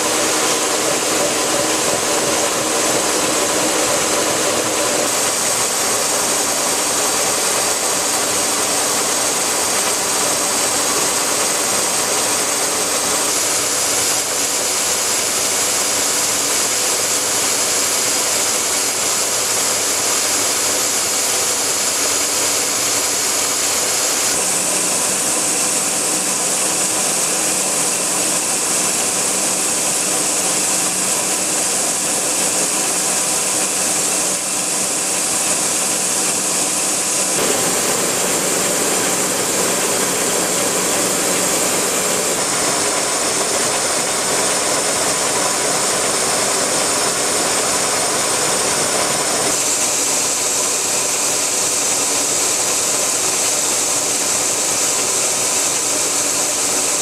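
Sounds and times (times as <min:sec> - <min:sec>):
high hiss: 0:00.0 - 0:57.0
milling machine cutting steel: 0:00.0 - 0:57.0
mill drive hum: 0:29.2 - 0:46.2.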